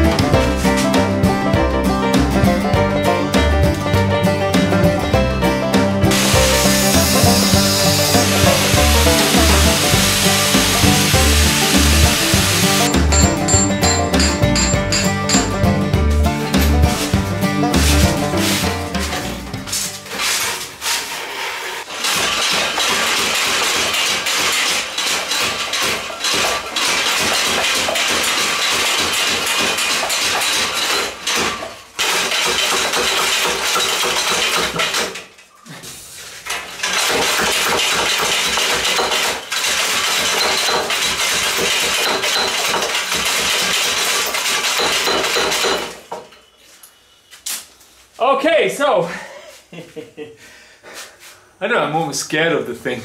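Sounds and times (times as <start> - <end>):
power hammer whacking steel: 6.1 - 15.6, 21.9 - 35.2, 36.8 - 46.0
metallic clatter: 12.8 - 15.7.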